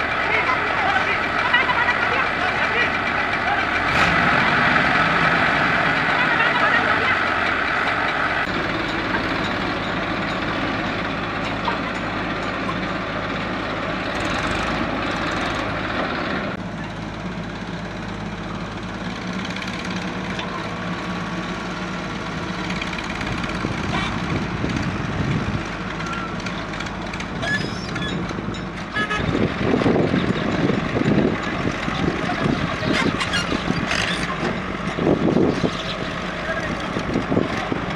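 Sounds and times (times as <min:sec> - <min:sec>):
diesel engines running: 0:00.0 - 0:37.9
backhoe digging soil: 0:32.7 - 0:36.0.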